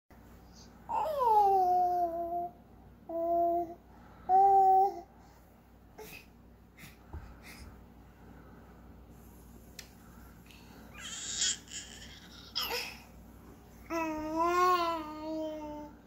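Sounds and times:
faint soft baby noises: 0:00.5 - 0:05.1, 0:10.9 - 0:13.1, 0:13.8 - 0:16.0
baby vocalizing: 0:10.9 - 0:13.0.

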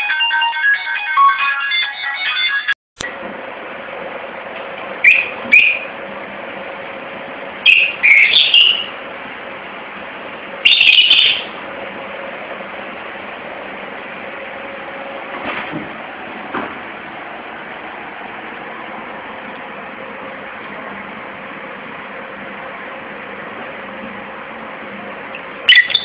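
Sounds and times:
lovebird chirping: 0:07.6 - 0:08.9, 0:10.6 - 0:11.5, 0:25.7 - 0:26.0.

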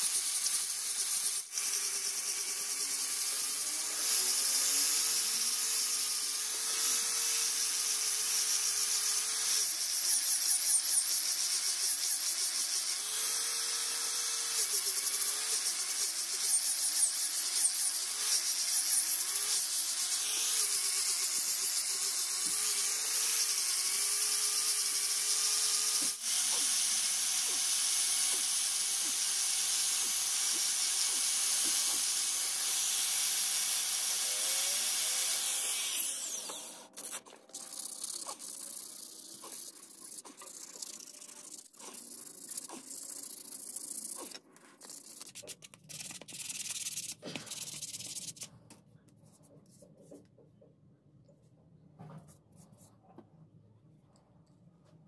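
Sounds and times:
hand sanding rubbing: 0:38.0 - 0:48.5.

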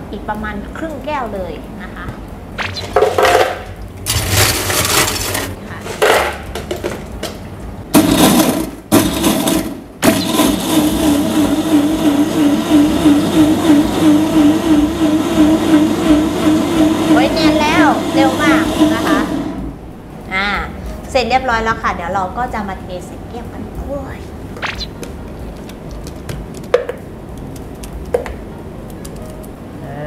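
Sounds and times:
blender crushing ice: 0:04.1 - 0:05.6, 0:08.0 - 0:19.6
ice cubes rattling into blender: 0:04.1 - 0:05.6.

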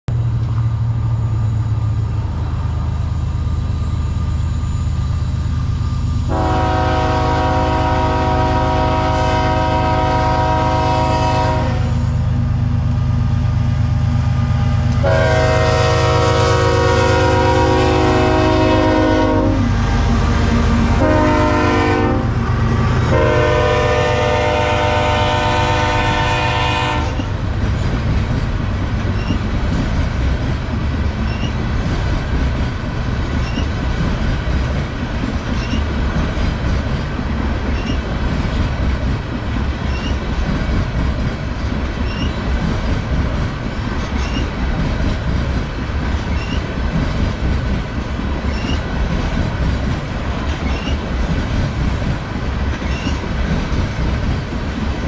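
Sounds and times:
diesel locomotives rumbling: 0:00.0 - 0:55.0
train wheels clattering on rails: 0:00.1 - 0:55.0
locomotive air horn blasts: 0:06.3 - 0:12.1, 0:15.0 - 0:27.3.

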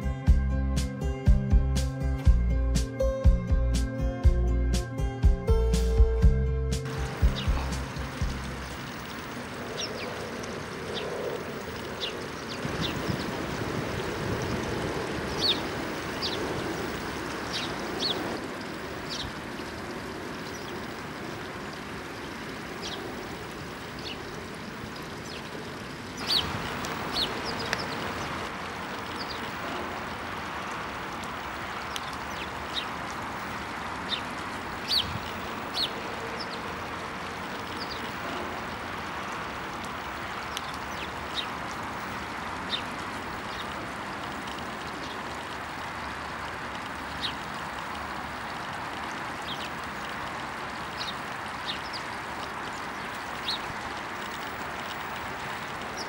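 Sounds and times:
sparrows chirping: 0:01.0 - 0:56.0
water rushing: 0:06.8 - 0:56.0
spout splashing into pool: 0:06.9 - 0:08.8.

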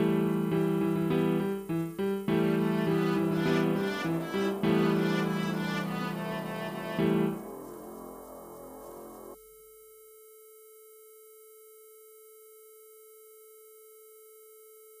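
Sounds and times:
music: 0:00.0 - 0:10.3
buzzy electronic tone: 0:02.3 - 0:09.4.

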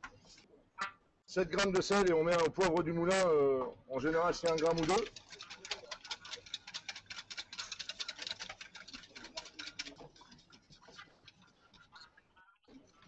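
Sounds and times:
whisk clicking in metal bowl: 0:04.0 - 0:12.0.

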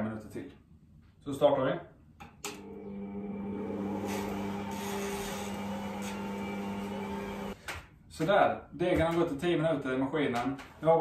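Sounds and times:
stand mixer motor hum: 0:02.6 - 0:07.6.

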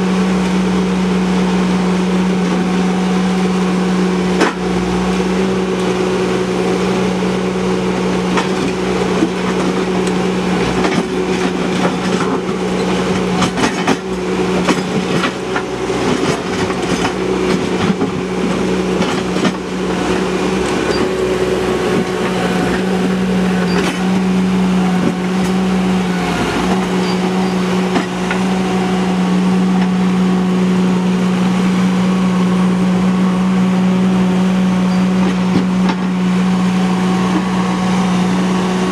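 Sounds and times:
skid steer engine running: 0:00.0 - 0:38.9
bucket clanking and scraping rocks: 0:08.2 - 0:30.1.

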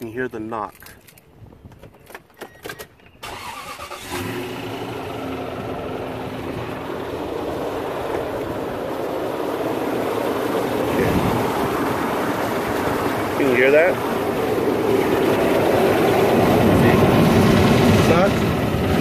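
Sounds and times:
engine running with knock: 0:05.4 - 0:19.0.

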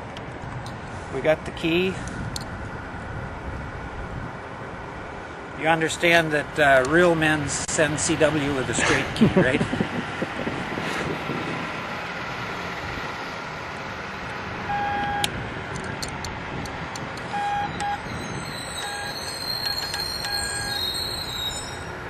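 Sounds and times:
road noise: 0:00.0 - 0:22.0
morse code beeps: 0:14.7 - 0:15.3, 0:17.3 - 0:18.1, 0:18.7 - 0:20.9.

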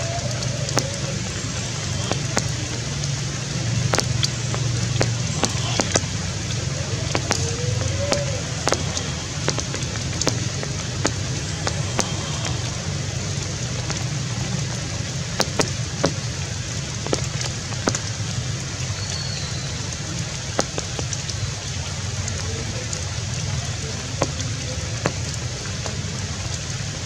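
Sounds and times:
low rumble and hiss: 0:00.0 - 0:27.0
sharp ticks: 0:03.9 - 0:06.2, 0:07.1 - 0:12.7.

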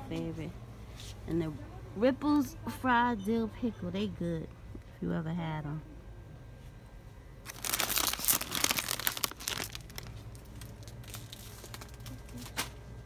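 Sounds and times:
plastic chip bag crinkling: 0:07.4 - 0:12.8.

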